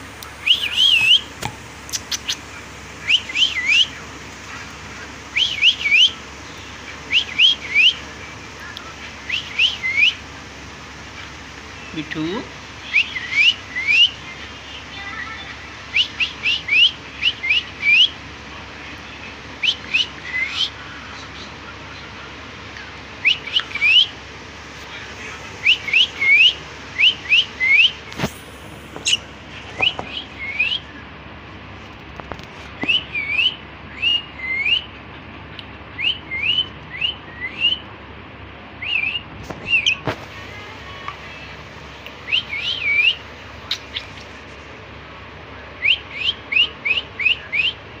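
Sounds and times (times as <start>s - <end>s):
cockatiel chirping: 0.4s - 4.0s, 5.3s - 6.2s, 7.1s - 8.0s, 23.2s - 24.1s, 29.0s - 30.8s, 42.3s - 44.3s.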